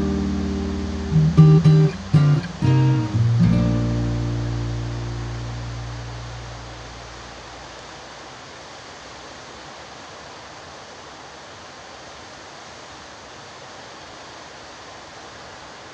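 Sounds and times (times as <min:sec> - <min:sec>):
guitar music: 0:00.0 - 0:07.2
steady hiss: 0:00.0 - 0:15.9.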